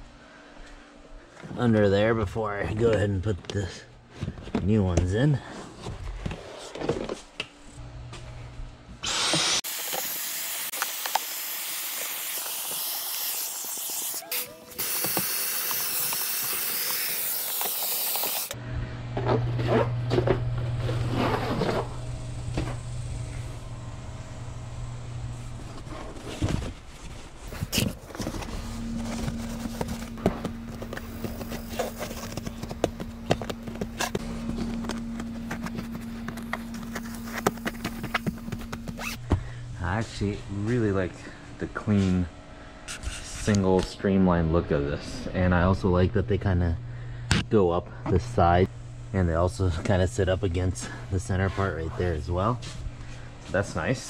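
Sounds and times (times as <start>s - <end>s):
cordless vacuum cleaner running: 9.0s - 18.6s, 27.9s - 39.2s
steady low hum: 14.6s - 54.0s.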